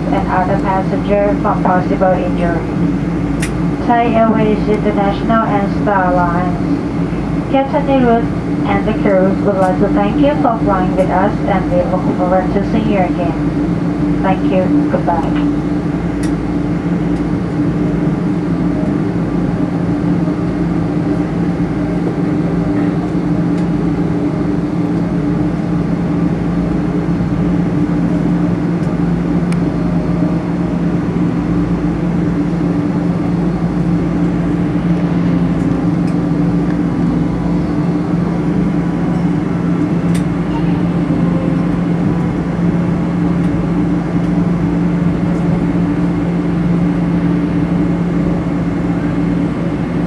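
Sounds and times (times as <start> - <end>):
airplane cabin drone: 0.0 - 50.0.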